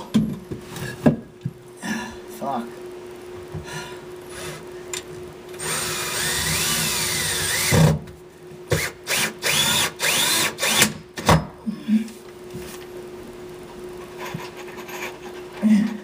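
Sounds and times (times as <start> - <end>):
power drill whining: 5.6 - 7.9, 8.7 - 11.0.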